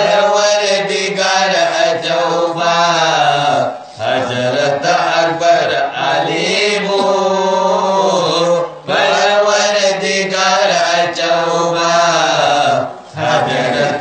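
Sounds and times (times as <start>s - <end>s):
men singing devotional song: 0.0s - 14.0s.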